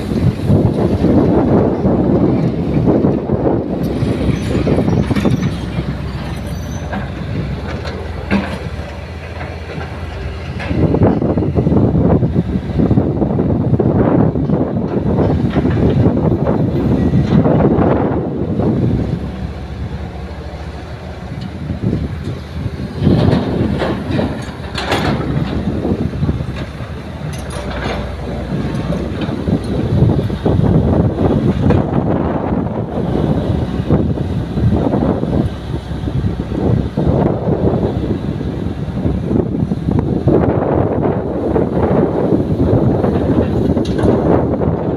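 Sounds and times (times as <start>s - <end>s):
excavator diesel engine running: 0.0s - 44.9s
metallic clanks and rattles: 3.9s - 11.3s, 23.0s - 30.1s.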